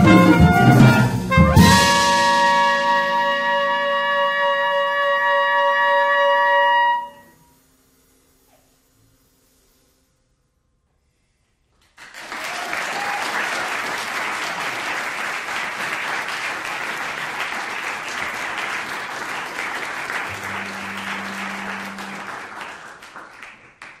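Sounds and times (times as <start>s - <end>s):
audience applauding: 11.8s - 24.0s.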